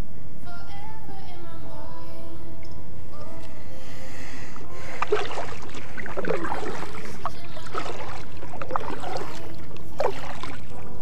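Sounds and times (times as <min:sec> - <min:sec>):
water gurgling around hull: 0:04.7 - 0:11.0
paddle splashing in water: 0:04.8 - 0:11.0.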